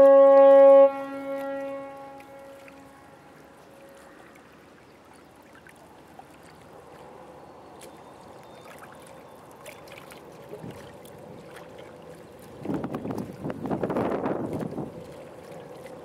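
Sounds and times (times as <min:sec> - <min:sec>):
ship's horn: 0:00.0 - 0:04.4
small splashes: 0:00.0 - 0:16.0.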